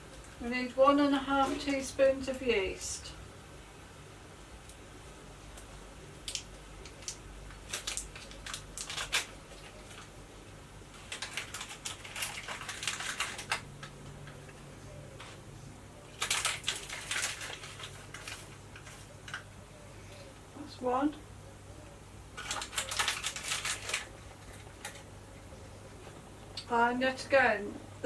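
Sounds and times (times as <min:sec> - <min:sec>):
foil sachet crinkling: 0:06.2 - 0:10.2, 0:10.9 - 0:13.9, 0:16.1 - 0:19.4, 0:22.4 - 0:25.1.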